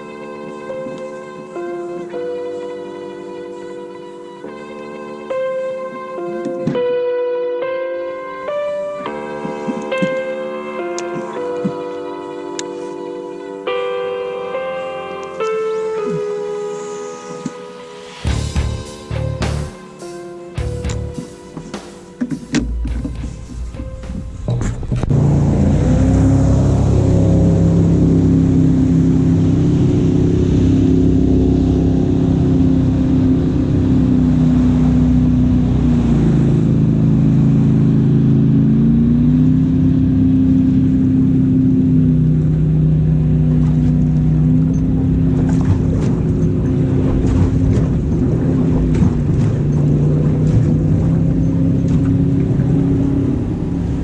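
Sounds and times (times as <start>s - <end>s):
outboard motor running: 20.6s - 54.0s.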